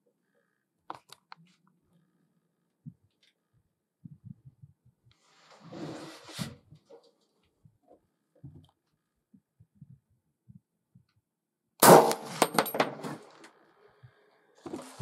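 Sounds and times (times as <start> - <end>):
loud gunshot with echo: 11.8 - 12.5.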